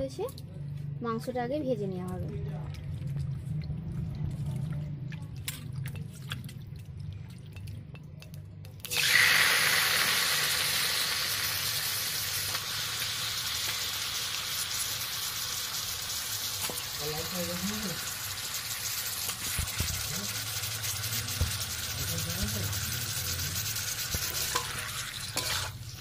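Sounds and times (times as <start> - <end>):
chicken sizzling in hot oil: 8.8 - 26.0.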